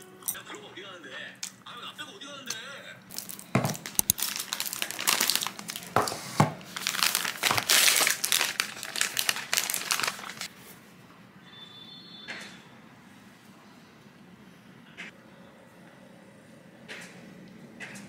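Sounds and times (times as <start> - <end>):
plastic packaging crinkling: 3.1 - 10.5.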